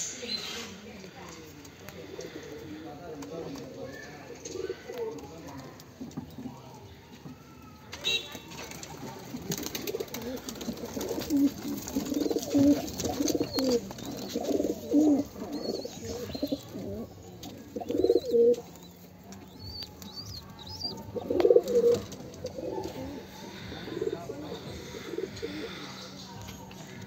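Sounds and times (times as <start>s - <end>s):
pigeons cooing: 4.2s - 5.3s, 8.8s - 27.0s.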